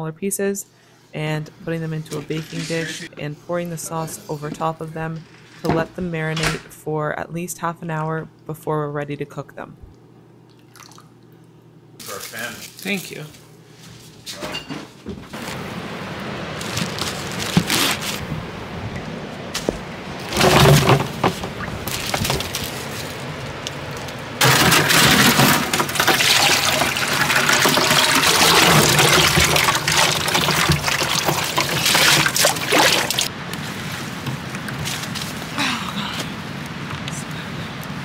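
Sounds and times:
liquid splashing and pouring: 24.4s - 33.3s.

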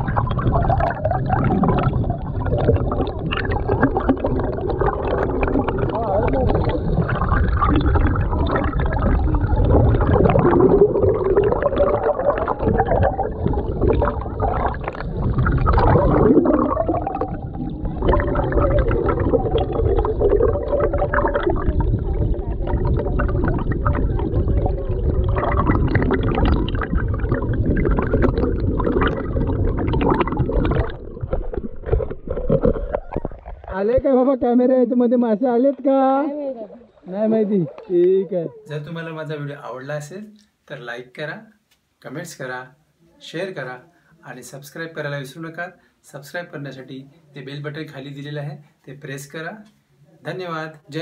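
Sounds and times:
muffled underwater stream gurgling: 0.0s - 34.1s.

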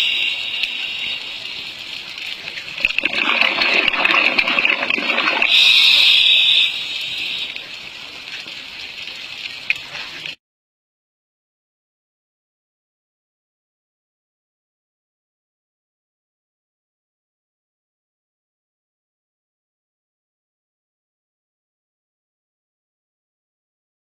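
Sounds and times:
underwater hissing rush: 0.0s - 7.9s.

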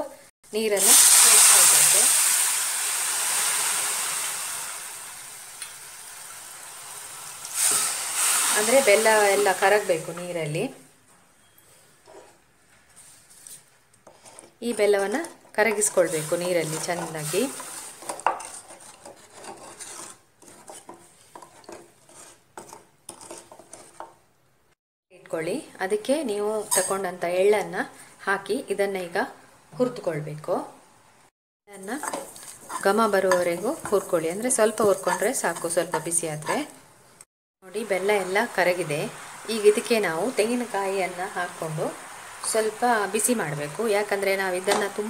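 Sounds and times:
water sizzling in a hot pan: 0.6s - 10.7s, 14.7s - 18.9s, 31.7s - 36.8s, 37.6s - 45.0s
wooden spatula scraping metal pan: 12.0s - 12.4s, 13.0s - 24.2s, 26.6s - 27.0s, 31.8s - 36.8s.

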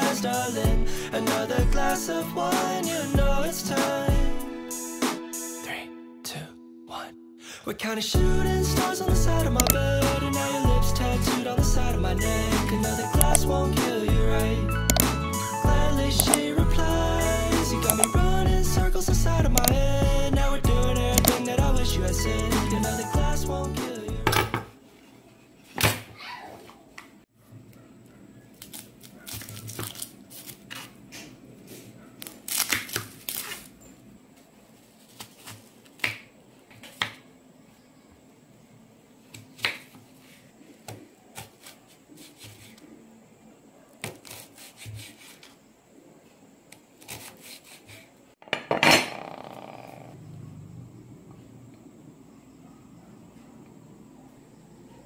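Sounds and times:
onion crunching: 28.5s - 31.0s, 32.2s - 33.8s.

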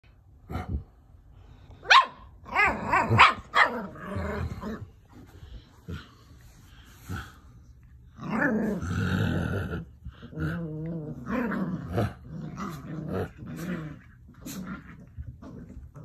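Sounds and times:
puppies growling: 2.4s - 16.0s.

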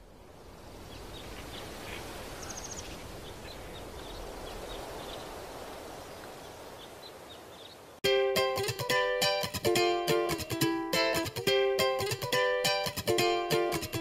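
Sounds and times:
steady outdoor hiss: 0.0s - 14.0s
faint bird chirps: 0.8s - 5.3s.

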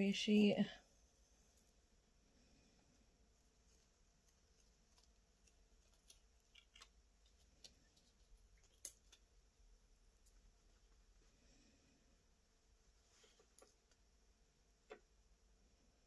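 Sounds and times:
plastic sheet crinkling and ticking: 3.6s - 9.3s.

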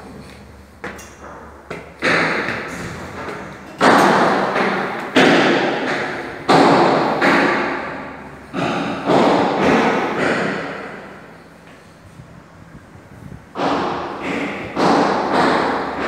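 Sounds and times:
heavy thuds echoing: 0.8s - 11.8s, 12.7s - 16.0s.

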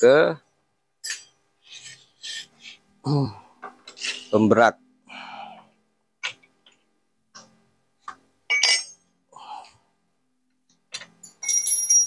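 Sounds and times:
ringing metallic clinks: 8.5s - 9.0s, 11.2s - 12.0s.

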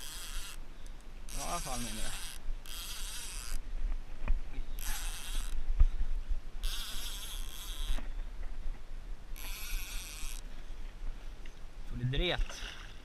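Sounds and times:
fishing reel whirring: 0.0s - 0.6s, 1.3s - 3.6s, 4.8s - 5.6s, 6.6s - 8.0s, 9.4s - 10.4s.

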